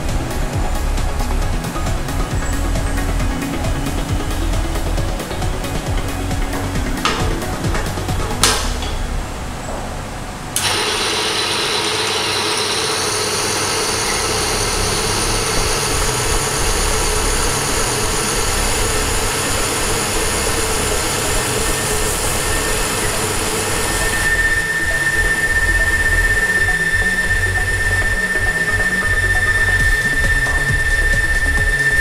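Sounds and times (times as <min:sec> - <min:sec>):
electric motor whining: 0:10.6 - 0:32.0.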